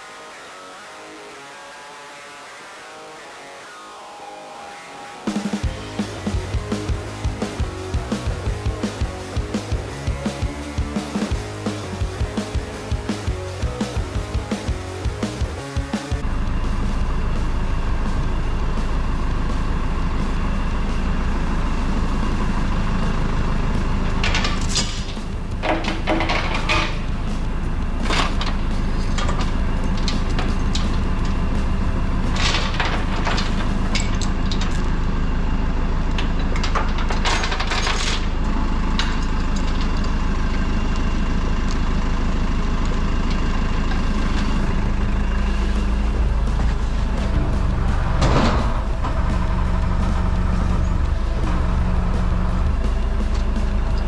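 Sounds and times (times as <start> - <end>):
diesel engine idling: 5.3 - 54.0
steel chain clinking and rattling: 24.2 - 27.0.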